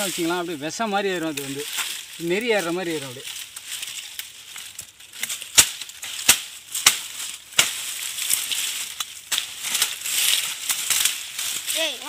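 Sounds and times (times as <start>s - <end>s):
dry leaves rustling: 0.0s - 12.0s
blade chopping into wood: 5.5s - 7.8s.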